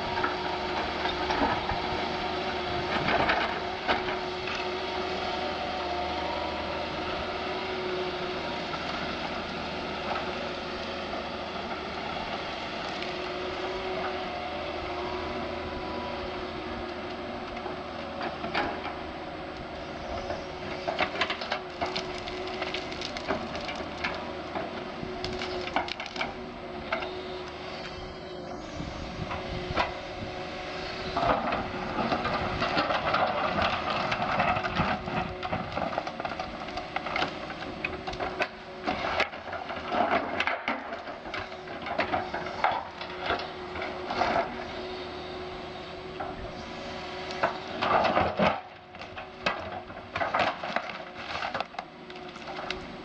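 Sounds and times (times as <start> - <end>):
excavator running: 0.0 - 53.0
roots and wood cracking: 16.8 - 29.9, 31.1 - 44.6, 47.2 - 53.0.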